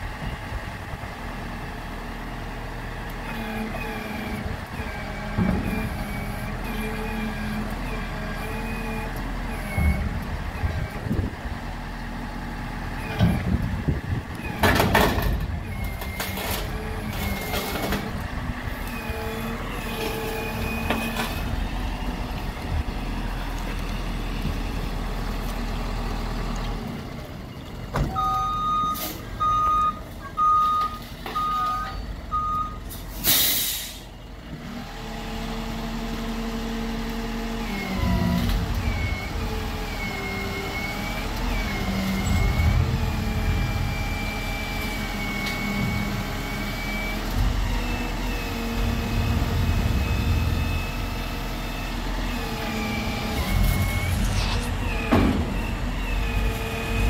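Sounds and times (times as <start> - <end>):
diesel truck engine under load: 0.0 - 57.0
reversing beeps: 28.1 - 32.9, 38.2 - 48.1, 49.1 - 51.9, 52.8 - 57.0
air-brake hiss: 33.1 - 34.1
high hydraulic whine: 42.0 - 57.0.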